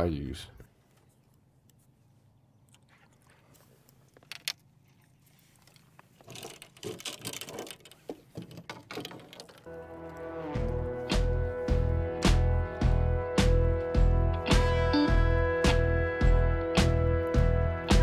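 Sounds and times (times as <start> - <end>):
fishing tackle clicks and taps: 4.1 - 4.7.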